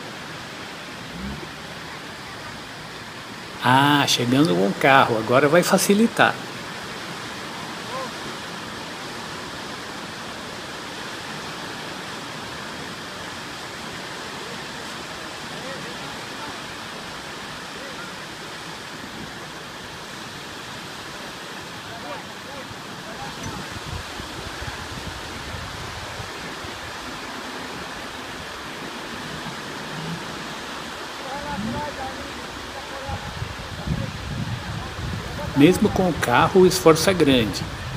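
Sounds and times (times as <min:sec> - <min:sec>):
surf washing onto beach: 0:00.0 - 0:37.9
surf breaking on beach: 0:20.7 - 0:37.9.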